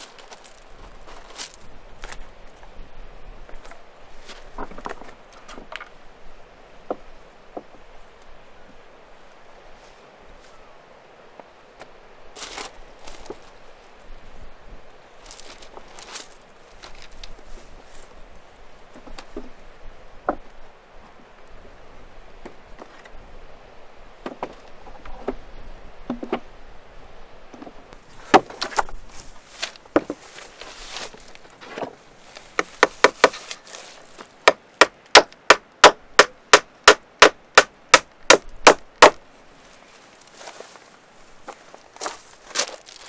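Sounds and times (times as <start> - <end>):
hand tool striking wood: 32.5 - 33.6, 34.4 - 39.2.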